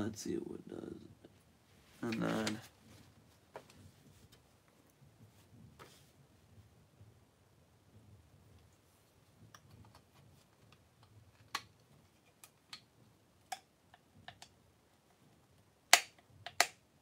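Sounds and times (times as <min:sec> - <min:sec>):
plastic toy clicking and snapping: 0:15.9 - 0:16.8.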